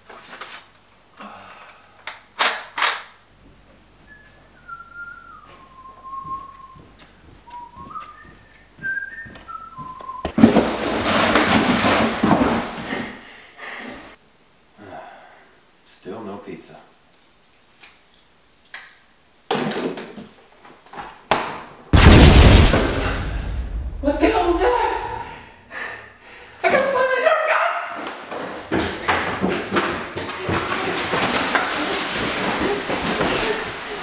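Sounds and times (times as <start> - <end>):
man whistling a tune: 4.0 - 6.9, 7.5 - 10.3
loud rushing noise: 22.0 - 25.3.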